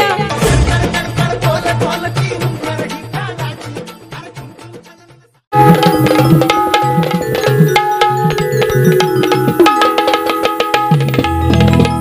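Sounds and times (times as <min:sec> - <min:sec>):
barrel hand drums: 0:00.0 - 0:03.0, 0:05.6 - 0:12.0
held steady melody: 0:05.5 - 0:12.0.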